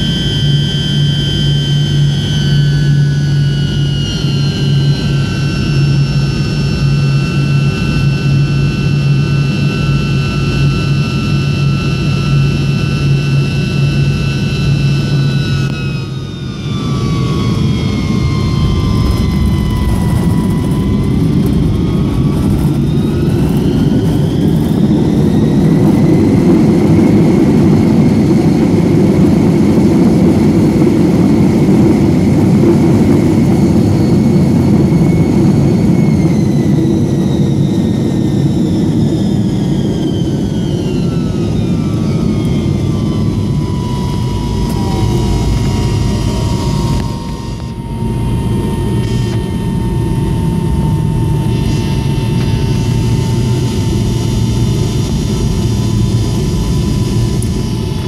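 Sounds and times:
jet engines whining: 0.0s - 58.0s
wheels rumbling on runway: 0.0s - 58.0s.

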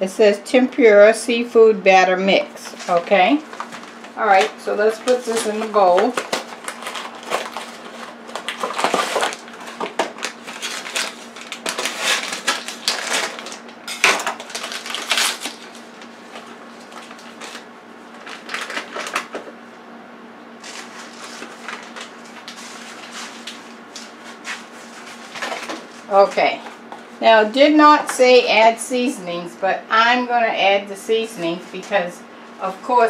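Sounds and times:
cardboard box and bag crinkling: 2.7s - 19.4s, 20.6s - 26.2s.

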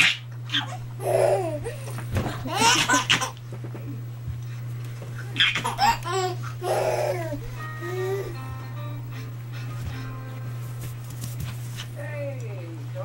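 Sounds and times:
baby giggling: 0.0s - 3.4s, 5.3s - 8.4s.

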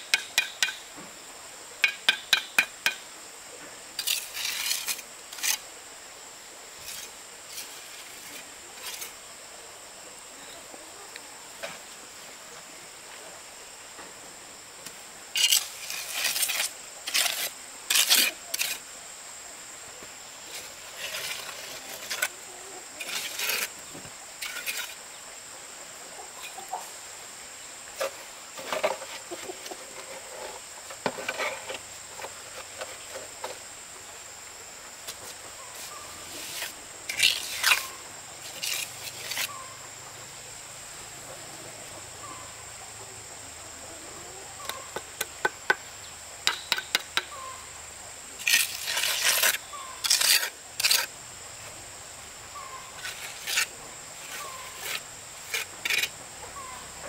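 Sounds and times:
scraping and rustling: 15.4s - 18.8s, 20.5s - 22.4s, 28.0s - 33.6s, 35.1s - 39.5s, 48.4s - 51.1s.

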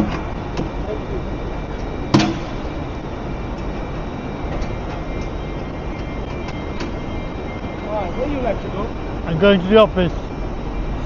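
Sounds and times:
background rumble and hiss: 0.0s - 11.0s
sharp knock: 2.1s - 2.6s.

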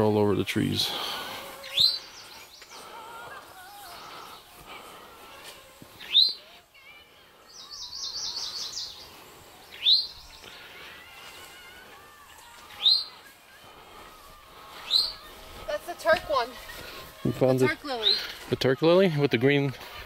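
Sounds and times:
bird high trill: 12.3s - 13.3s, 14.8s - 15.3s.

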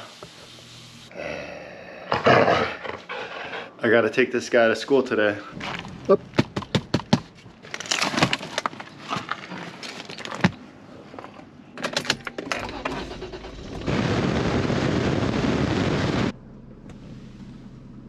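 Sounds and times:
truck engine starting and running: 5.5s - 8.8s, 11.7s - 18.0s.

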